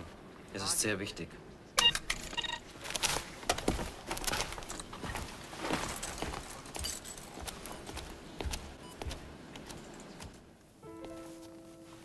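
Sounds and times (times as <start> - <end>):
footsteps: 2.8 - 12.0.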